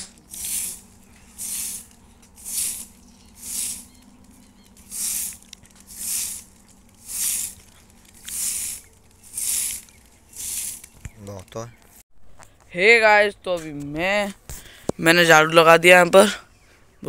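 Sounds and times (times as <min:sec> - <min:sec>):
broom swishing on dirt path: 0:00.0 - 0:11.3.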